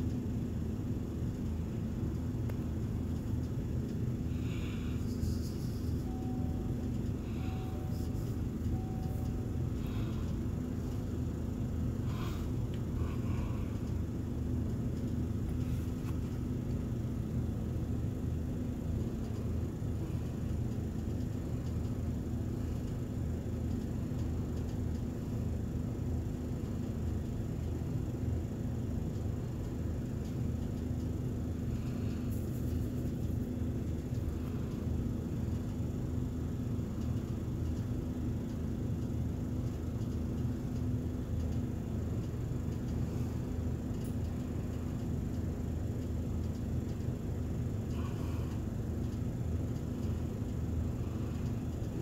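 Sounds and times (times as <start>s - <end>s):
constant low hum: 0.0s - 52.0s
low background rumble: 0.0s - 52.0s
faint ticks: 37.0s - 43.0s.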